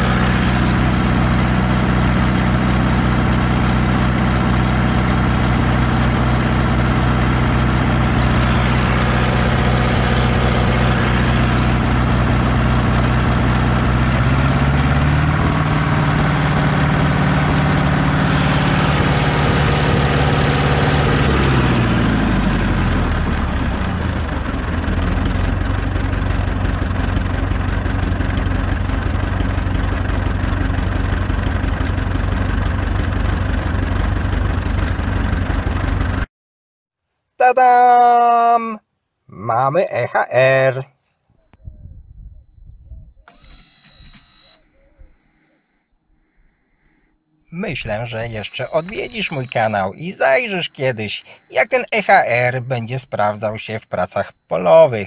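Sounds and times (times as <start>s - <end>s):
tractor diesel engine running: 0.0s - 36.3s, 41.6s - 55.0s.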